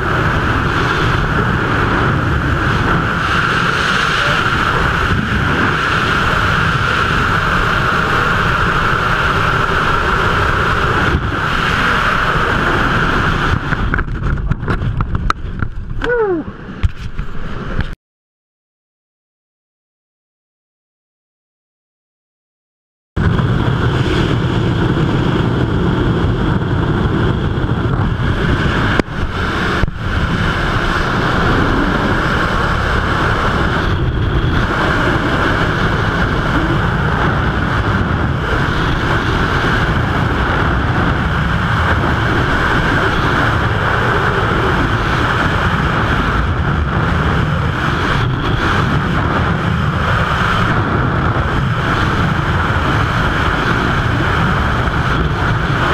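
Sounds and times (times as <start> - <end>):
wind rushing over microphone: 0.0 - 18.0, 23.2 - 55.9.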